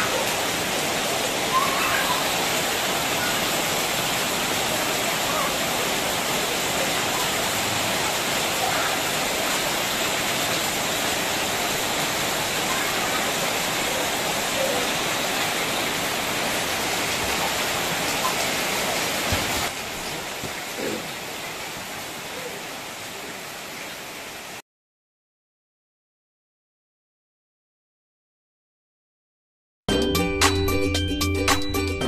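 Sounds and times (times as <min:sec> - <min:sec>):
faint children's voices: 0:00.0 - 0:10.6, 0:11.4 - 0:15.9
heavy rain pouring: 0:00.0 - 0:24.6.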